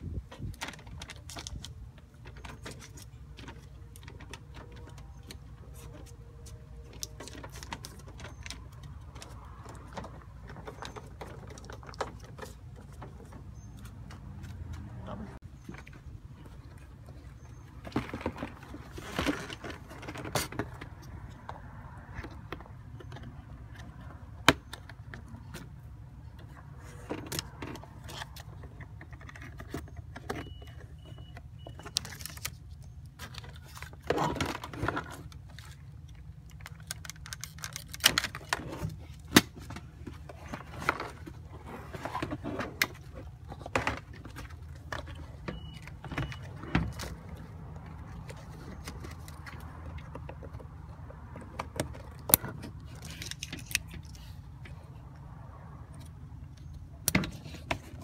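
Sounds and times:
plastic and metal parts clicking: 17.3s - 54.8s.

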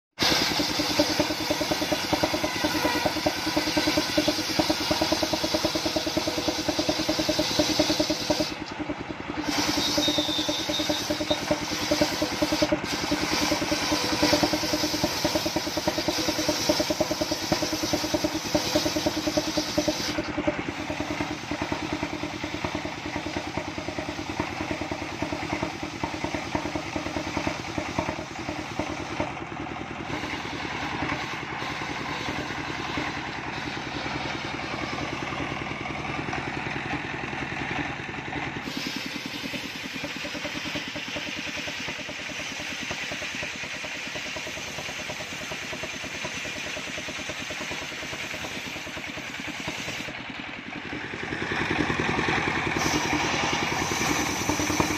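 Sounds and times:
saw blade cutting wood: 0.2s - 8.8s, 9.4s - 21.4s, 52.8s - 54.9s
sawmill engine running: 0.2s - 54.9s
blade spinning freely: 51.8s - 54.9s.

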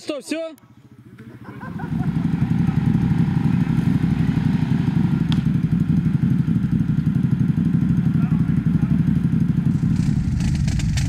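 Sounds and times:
atv engine running hard: 0.6s - 11.0s.

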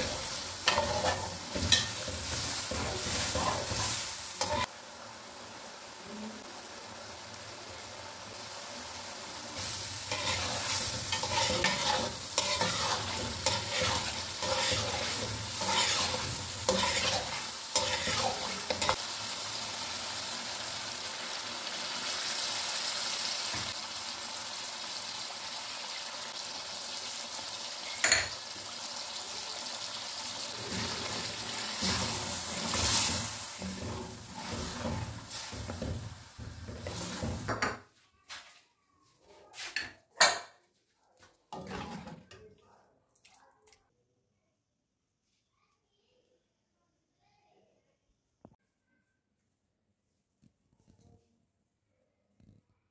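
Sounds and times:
ladle stirring and scraping: 0.0s - 4.7s, 9.6s - 19.0s, 30.6s - 37.7s, 41.5s - 42.6s
curry sizzling in a pot: 0.0s - 38.0s, 41.5s - 42.3s.

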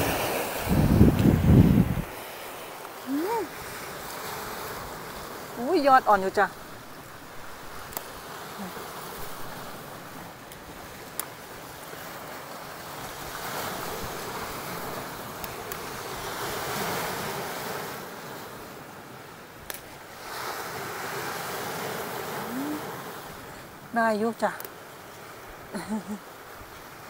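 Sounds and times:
strong wind: 0.0s - 2.2s
sea surf washing on shore: 0.0s - 27.0s.

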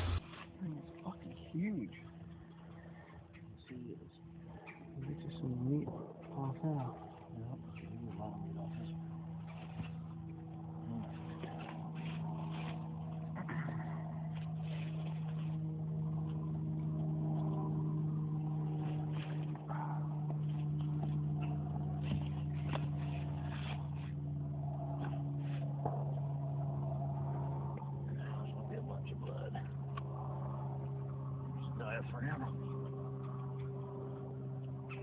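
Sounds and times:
rustles on dry leaves: 0.0s - 0.7s, 11.0s - 16.5s
low motor drone: 0.0s - 35.0s.

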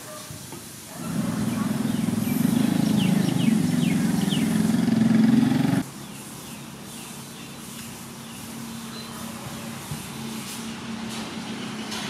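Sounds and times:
motor humming: 1.0s - 5.8s.

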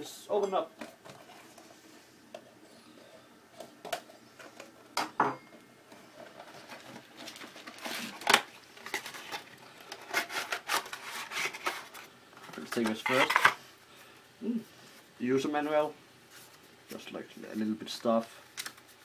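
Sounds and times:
packaging scrapes and rustles: 6.0s - 13.6s.

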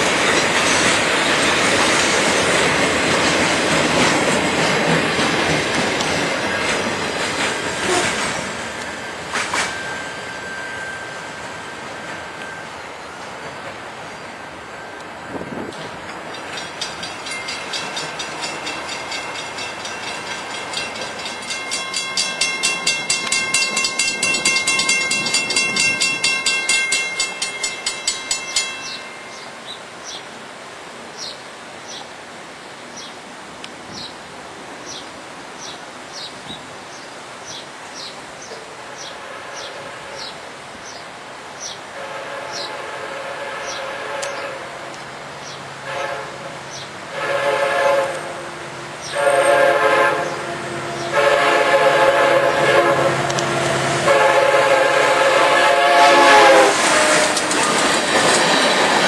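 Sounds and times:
freight train passing: 0.0s - 59.0s
crossing bell ringing: 6.4s - 13.7s, 14.6s - 29.8s
locomotive horn: 7.8s - 8.3s, 39.0s - 40.4s, 41.9s - 45.0s, 45.8s - 57.9s.

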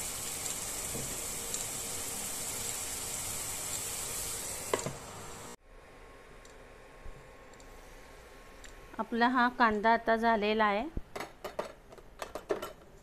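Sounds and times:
onion paste sizzling in a frying pan: 0.0s - 5.6s.

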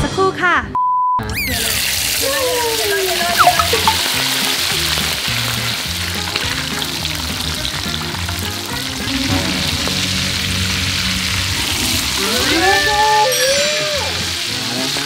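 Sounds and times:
oil sizzling and spitting in a wok: 1.4s - 15.0s
background music: 3.2s - 15.0s.

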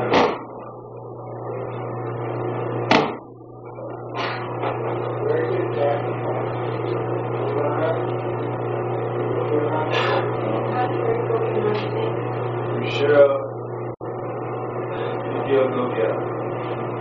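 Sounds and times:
low electrical hum: 0.0s - 17.0s
short sharp thumps: 2.9s - 3.3s.

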